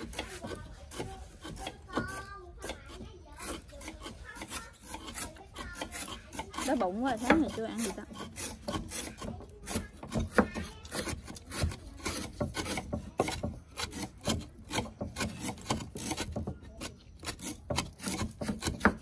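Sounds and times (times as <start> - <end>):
knife chopping on cutting board: 8.1 - 19.0.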